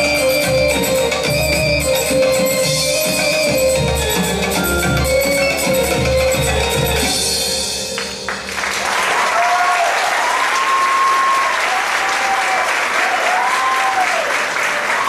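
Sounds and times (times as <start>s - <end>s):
belly dance music: 0.0s - 8.8s
audience clapping and cheering: 8.0s - 15.0s.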